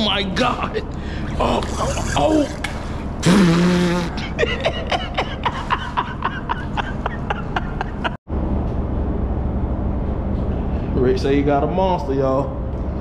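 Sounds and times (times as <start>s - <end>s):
low rumble: 6.0s - 13.0s.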